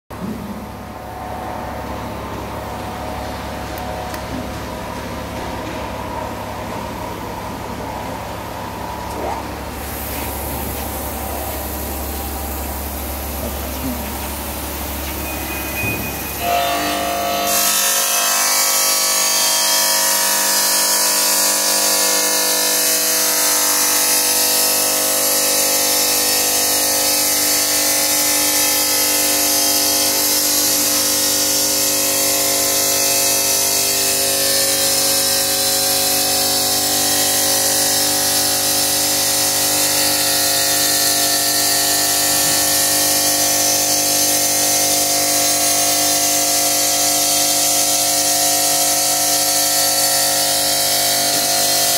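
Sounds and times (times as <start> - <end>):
stone saw whining: 14.9 - 51.9.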